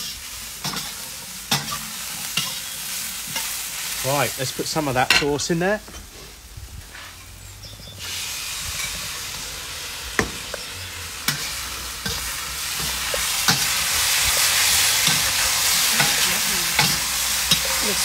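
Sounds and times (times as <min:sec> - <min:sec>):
beef sizzling in a wok: 0:00.0 - 0:18.0
metal spoon clinking on wok: 0:16.0 - 0:18.0.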